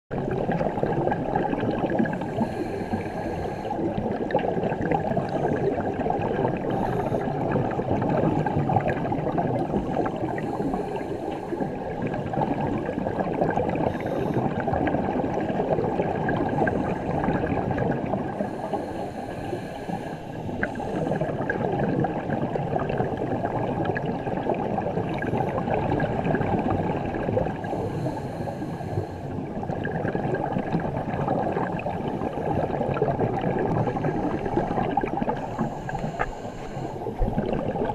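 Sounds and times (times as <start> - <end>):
scuba regulator breathing hiss: 2.2 - 3.8, 18.4 - 21.1, 27.7 - 29.3, 35.4 - 37.2
burst of bubbles: 37.2 - 37.9.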